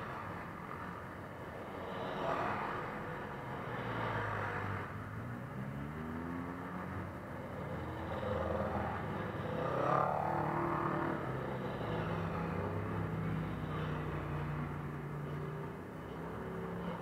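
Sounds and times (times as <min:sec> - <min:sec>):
buggy engines driving past: 0:00.0 - 0:17.0
engine revving: 0:05.6 - 0:17.0.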